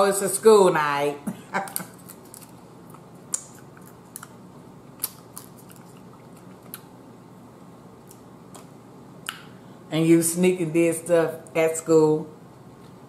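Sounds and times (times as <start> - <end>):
sucking and chewing crab: 1.6 - 7.0.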